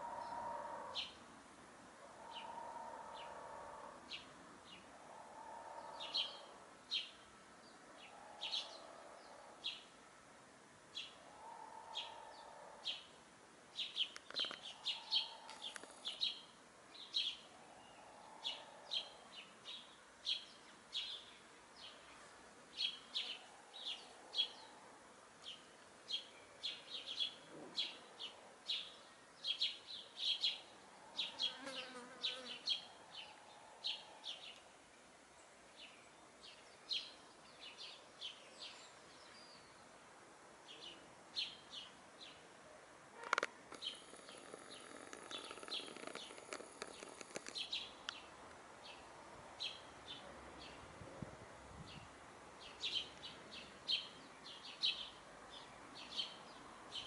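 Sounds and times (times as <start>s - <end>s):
small birds chirping: 13.8s - 24.8s, 43.2s - 50.8s.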